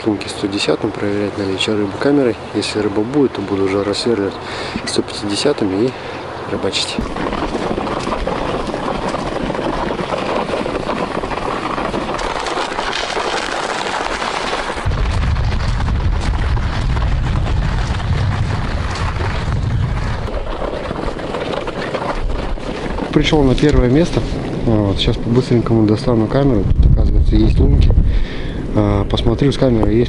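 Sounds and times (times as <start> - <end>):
low rumble of wind gust: 0.0 - 30.0
wind buffeting microphone: 0.0 - 30.0
footsteps crunching on snowy ice: 7.0 - 24.6.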